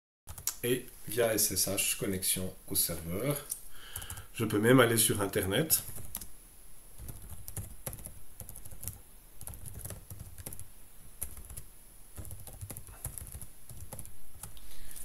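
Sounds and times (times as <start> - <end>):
typing on computer keyboard: 4.0 - 4.3, 5.9 - 6.3, 7.0 - 14.5.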